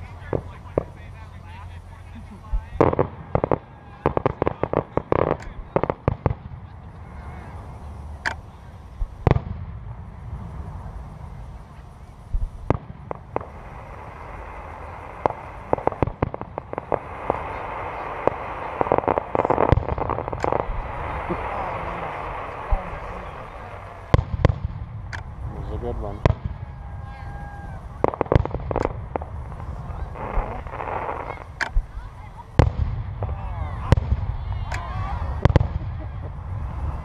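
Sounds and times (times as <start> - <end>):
fireworks bangs and crackles: 0.0 - 37.0
fireworks booms: 0.0 - 37.0
rising hiss: 10.0 - 24.5.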